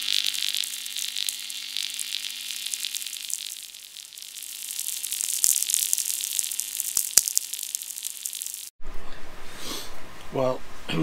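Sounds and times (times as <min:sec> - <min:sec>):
crackling static hiss: 0:00.0 - 0:08.8
mains hum buzz: 0:00.0 - 0:09.0.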